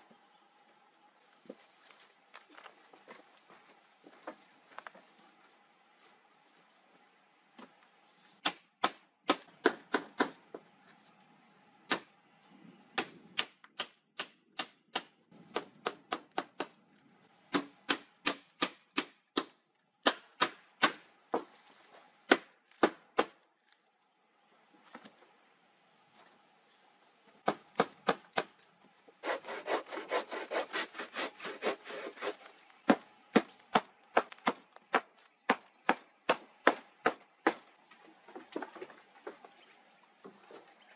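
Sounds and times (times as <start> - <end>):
hammer striking wooden planks: 8.4 - 10.4, 32.9 - 37.7.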